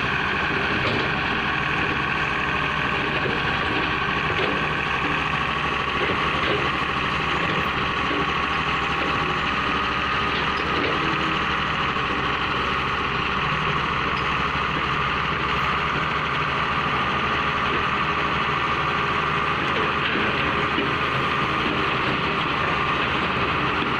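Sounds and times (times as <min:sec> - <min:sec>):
excavator diesel engine running: 0:00.0 - 0:23.9.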